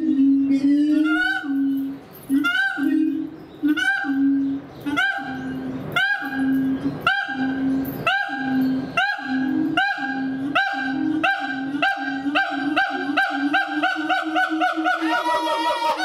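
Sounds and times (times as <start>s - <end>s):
steady low hum: 0.0s - 14.9s
ape calling in rising barks: 5.0s - 16.0s.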